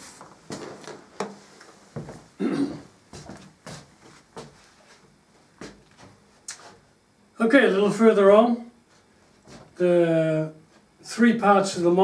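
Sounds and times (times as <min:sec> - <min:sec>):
footsteps on wooden floor: 0:00.0 - 0:06.3, 0:09.4 - 0:09.8.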